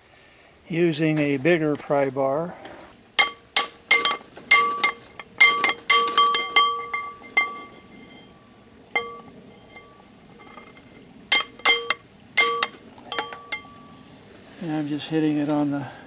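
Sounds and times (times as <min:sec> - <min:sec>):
hammer striking steel pry bar: 0:03.2 - 0:07.7, 0:11.3 - 0:13.8.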